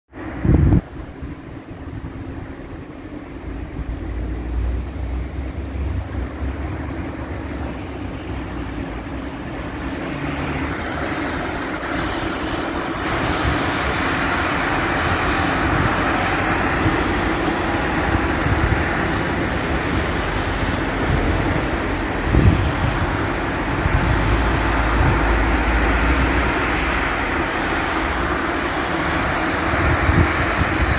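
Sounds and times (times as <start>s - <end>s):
road traffic: 0.1s - 30.9s
wind: 0.1s - 30.9s.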